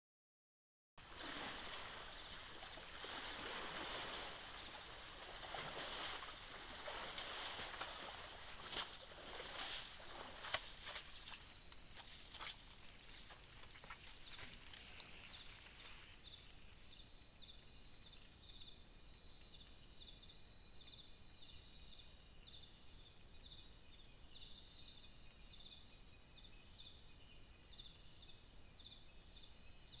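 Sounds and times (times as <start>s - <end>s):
insects trilling at night: 1.0s - 30.0s
vegetation rustling and crackling: 1.1s - 16.8s
pulsing insect chirp: 1.2s - 30.0s.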